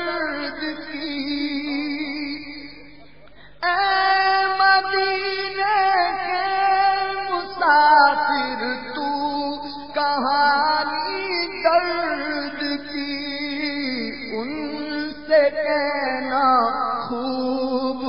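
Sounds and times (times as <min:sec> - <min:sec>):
man singing held notes: 0:00.0 - 0:05.6.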